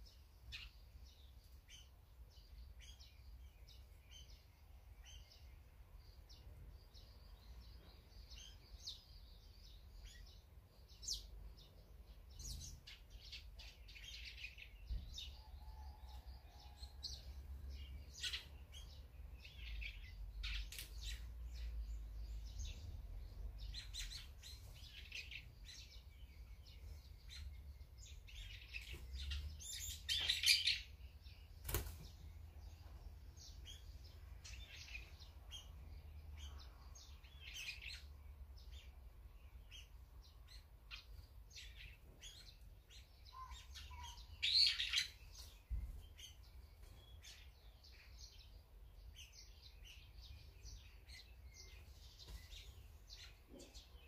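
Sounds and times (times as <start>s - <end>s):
small birds chirping: 0.0s - 54.0s
wings flapping: 31.6s - 32.2s.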